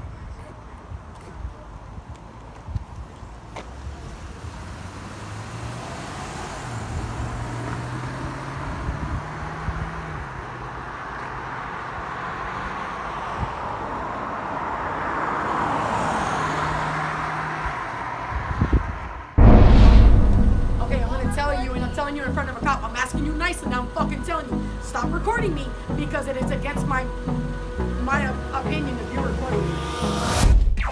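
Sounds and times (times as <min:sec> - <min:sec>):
car passing: 0:04.4 - 0:23.2
low steady hum: 0:19.4 - 0:24.8.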